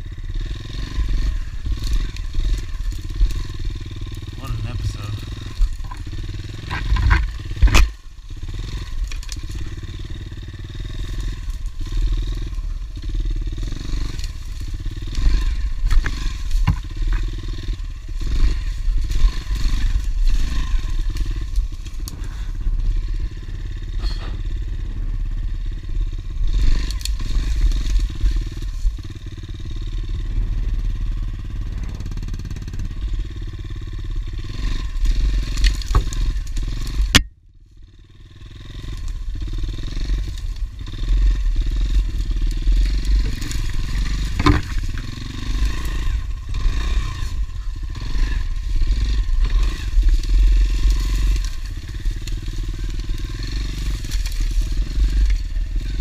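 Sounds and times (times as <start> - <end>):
bike knocking and rattling: 0.0 - 56.0
dirt bike engine running: 0.0 - 56.0.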